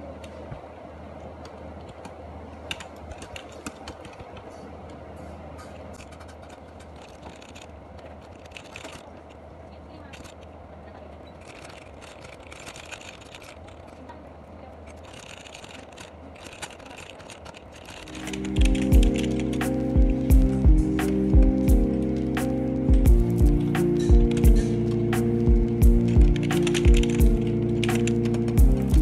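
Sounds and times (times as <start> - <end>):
steady low hum: 0.0 - 29.0
mechanical keyboard typing: 2.7 - 4.4, 6.0 - 9.0, 11.4 - 14.0, 14.9 - 22.4, 23.3 - 29.0.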